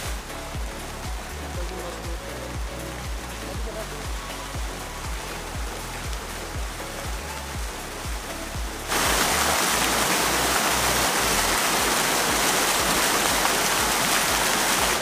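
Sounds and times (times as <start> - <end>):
background music with low beat: 0.0 - 15.0
waterfall rushing into pool: 0.0 - 15.0.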